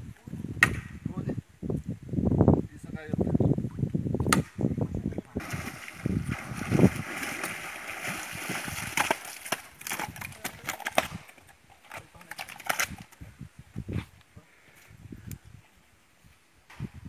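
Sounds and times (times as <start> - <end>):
water splashing: 5.4 - 10.1
fish slapping on rock: 5.4 - 11.2.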